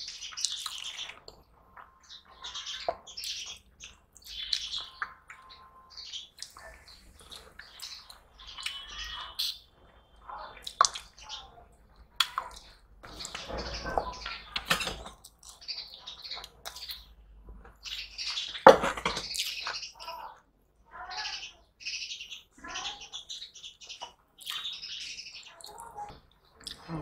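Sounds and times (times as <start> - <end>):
wet smacking and chewing: 6.3 - 6.6, 10.6 - 11.2, 12.0 - 13.4, 14.6 - 15.6, 16.4 - 17.1
fingers squishing food: 10.6 - 11.2, 14.6 - 18.6.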